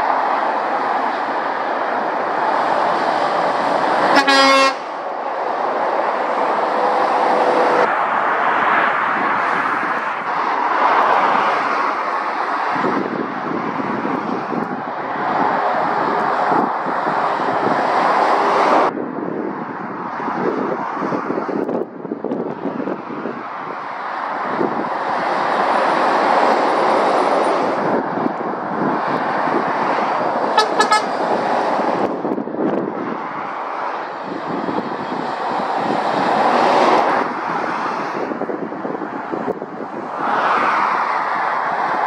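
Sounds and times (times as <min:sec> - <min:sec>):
traffic passing at speed: 0:00.0 - 0:42.0
short horn toot: 0:04.2 - 0:04.9, 0:30.6 - 0:31.2.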